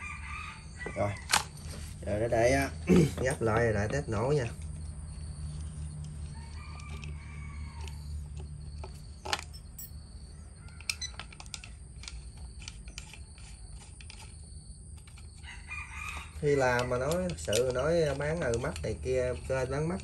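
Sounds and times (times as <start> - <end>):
rooster crowing faintly: 0.0 - 2.1, 6.2 - 8.4.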